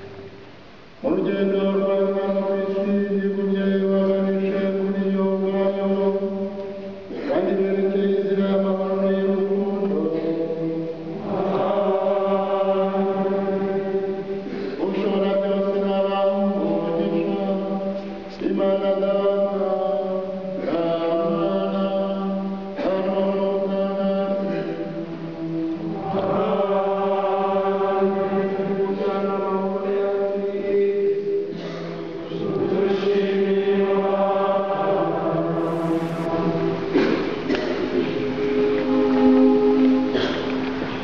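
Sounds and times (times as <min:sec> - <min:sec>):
choir chanting long notes: 0:10.0 - 0:17.7, 0:19.5 - 0:30.5, 0:32.2 - 0:41.0
steady low drone note: 0:35.6 - 0:41.0.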